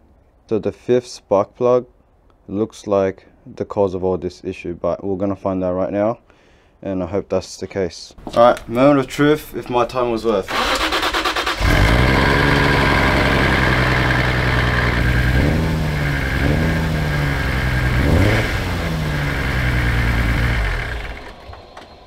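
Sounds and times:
car engine revving: 0:10.5 - 0:22.0.

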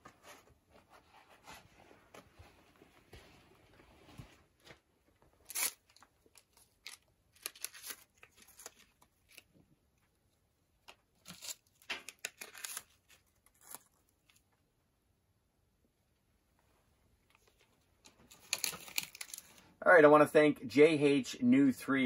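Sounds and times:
paper wrappers tearing and crinkling: 0:05.4 - 0:09.5, 0:11.2 - 0:14.1, 0:18.3 - 0:19.6.

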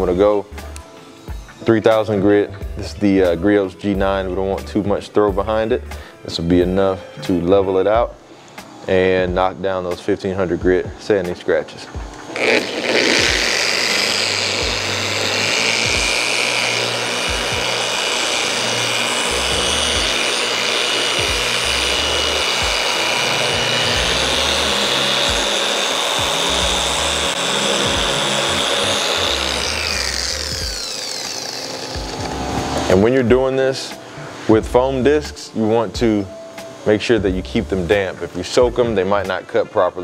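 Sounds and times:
orbital polisher motor whine: 0:11.6 - 0:33.6.

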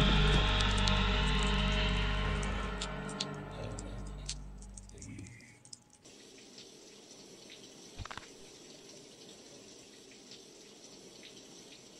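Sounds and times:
shower water spraying: 0:00.0 - 0:05.0.

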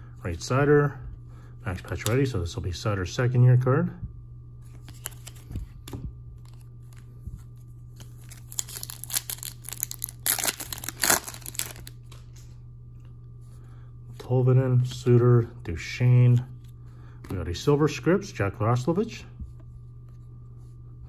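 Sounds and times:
foil wrapper crinkling and tearing: 0:08.0 - 0:12.2.

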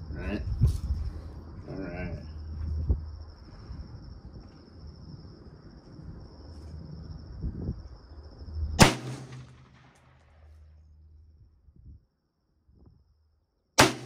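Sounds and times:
rifle shot with echo: 0:08.8 - 0:10.3, 0:13.8 - 0:14.0.

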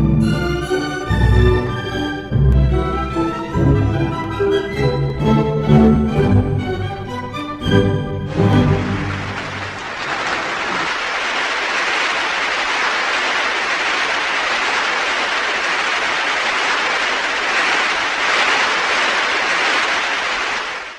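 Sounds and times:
audience applauding: 0:07.7 - 0:20.9.

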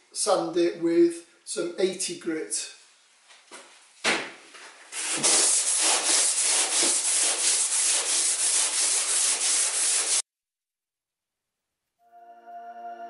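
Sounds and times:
sanding block rasping: 0:04.9 - 0:10.2.

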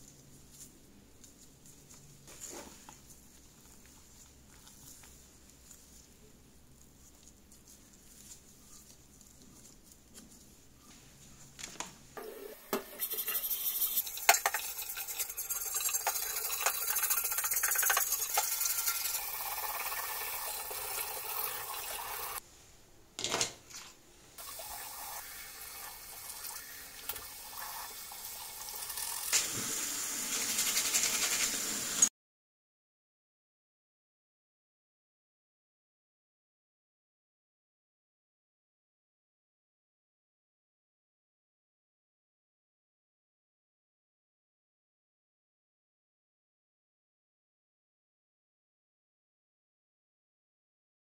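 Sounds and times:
brush scrubbing metal parts: 0:00.0 - 0:11.5, 0:12.8 - 0:21.7, 0:28.9 - 0:32.1
tap water running into sink: 0:12.2 - 0:22.4, 0:24.4 - 0:32.1.

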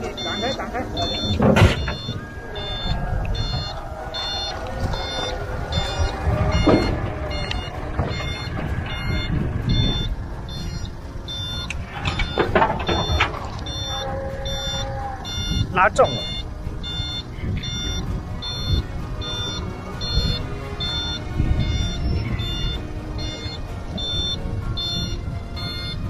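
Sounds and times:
heavy knocks: 0:00.0 - 0:13.8
truck engine rumble: 0:00.0 - 0:26.0
truck warning beeper: 0:00.0 - 0:26.0
winch pulling: 0:00.0 - 0:26.0.

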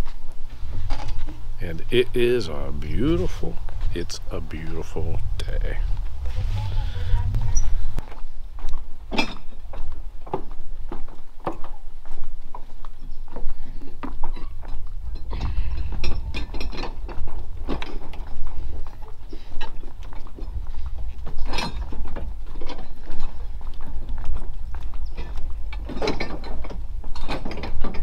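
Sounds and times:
low rumble: 0:00.5 - 0:08.7.

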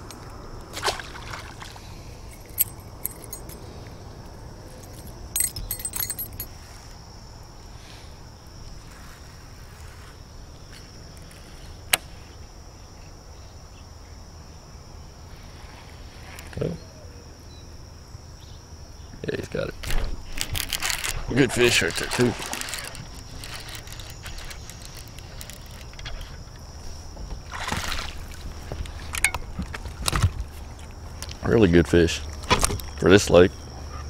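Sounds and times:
metallic jingle: 0:02.3 - 0:03.8, 0:04.8 - 0:06.5
high-pitched insect drone: 0:16.2 - 0:27.2.

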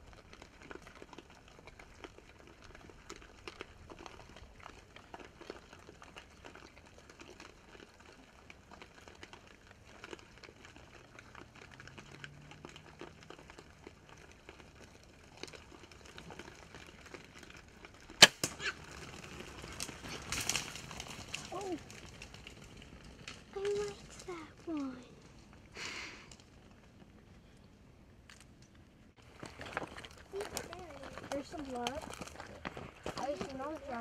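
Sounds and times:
faint crackling and ticking: 0:00.0 - 0:34.0
loud sharp bow shot crack: 0:18.2 - 0:18.8.

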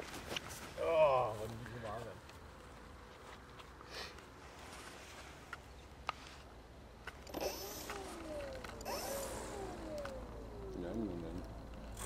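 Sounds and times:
model airplane motor whining: 0:07.2 - 0:12.0.

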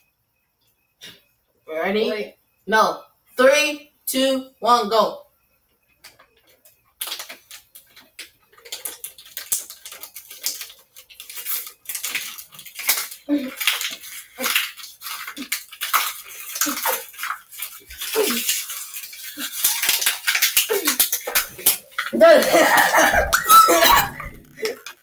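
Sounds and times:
plastic bottles crinkling: 0:06.1 - 0:25.0
people gulping water: 0:15.3 - 0:25.0.

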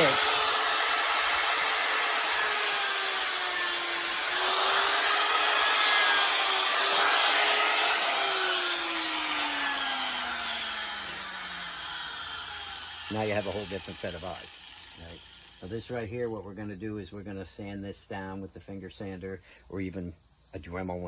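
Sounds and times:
die grinder grinding wood: 0:00.0 - 0:16.1.

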